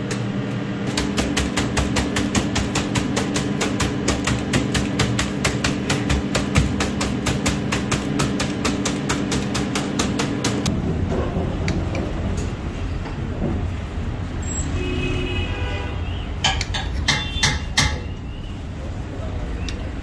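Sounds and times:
low rumble of street noise: 10.6s - 20.0s.

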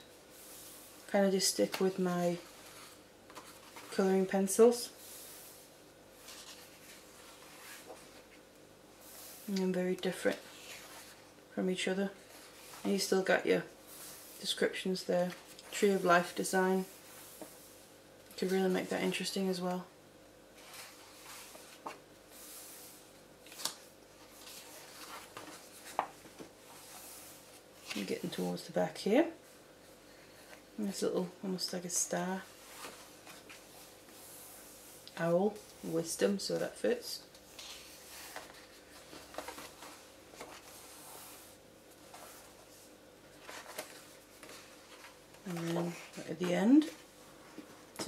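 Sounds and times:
paper pages rustling: 1.6s - 4.2s, 6.2s - 8.4s, 20.6s - 22.0s, 23.4s - 28.4s, 37.3s - 48.0s.

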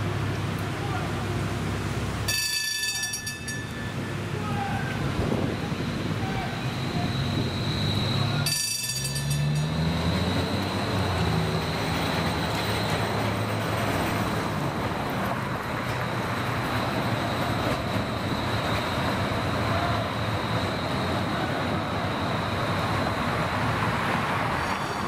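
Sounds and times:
electric streetcar motors humming: 0.0s - 25.0s
passing cars: 0.0s - 25.0s
high ringing: 2.2s - 4.7s, 5.6s - 13.0s, 24.6s - 25.0s
thin high tone: 2.3s - 12.6s, 24.6s - 25.0s.

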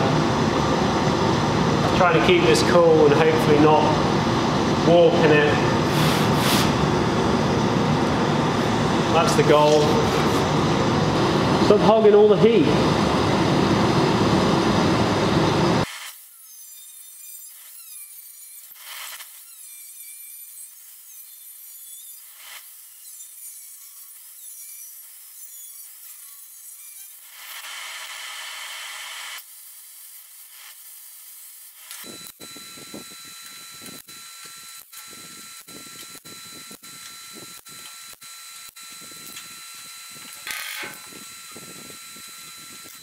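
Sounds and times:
space heater rushing: 0.0s - 15.9s
angle grinder cutting sheet steel: 15.8s - 43.0s.

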